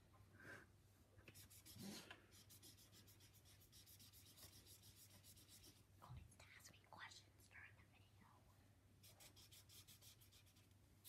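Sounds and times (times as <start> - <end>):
marker rubbing on paper: 1.3 - 5.8, 9.0 - 10.7.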